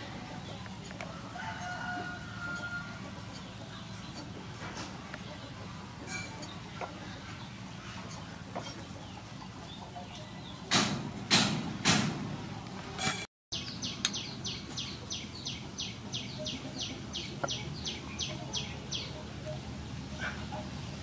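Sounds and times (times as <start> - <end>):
bird chirping: 13.5 - 19.6.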